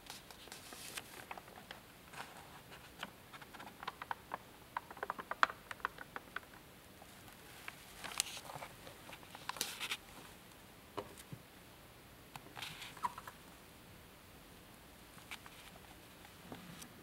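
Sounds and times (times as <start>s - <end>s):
old paper pages rustling: 0.0s - 10.4s, 12.5s - 13.3s.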